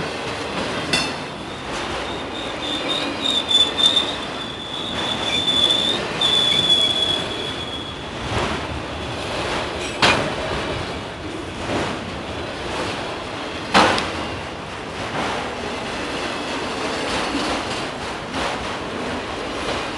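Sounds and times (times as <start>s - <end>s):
train wheels running: 0.0s - 19.9s
train wheel squeal: 0.9s - 8.1s.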